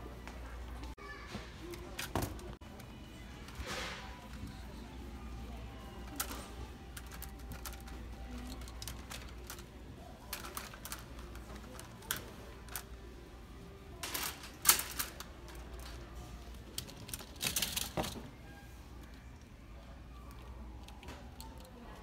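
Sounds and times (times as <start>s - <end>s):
plastic hangers clattering: 5.9s - 13.1s, 14.0s - 18.3s.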